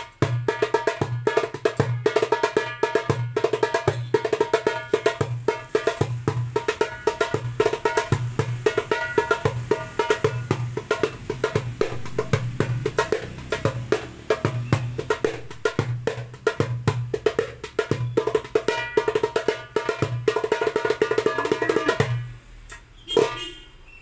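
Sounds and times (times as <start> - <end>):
hand drum played in rhythm: 0.0 - 22.4.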